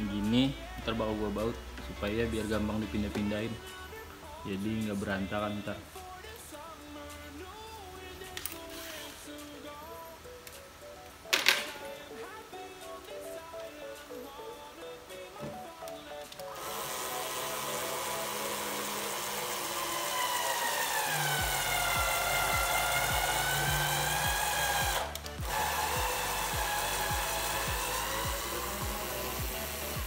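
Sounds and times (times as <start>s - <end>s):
background music with steady beat: 0.0s - 30.0s
cordless drill motor whine: 16.5s - 30.0s.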